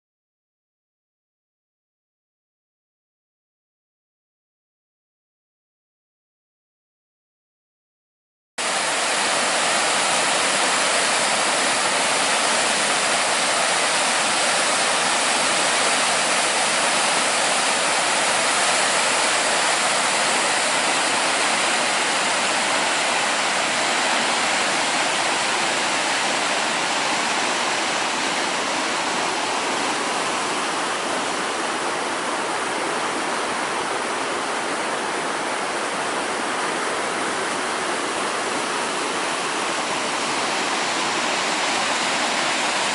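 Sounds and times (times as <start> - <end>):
river water rushing: 8.6 - 42.9.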